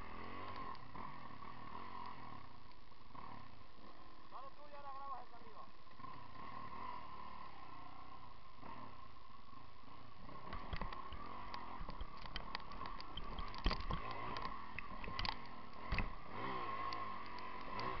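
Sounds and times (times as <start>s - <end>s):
motorcycle engine revving: 0.0s - 18.0s
wheels knocking on rocks: 10.4s - 16.2s.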